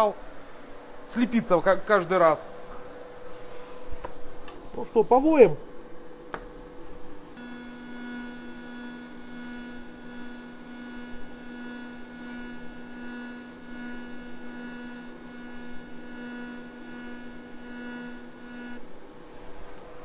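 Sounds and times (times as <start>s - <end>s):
welding arc buzzing: 6.3s - 20.0s.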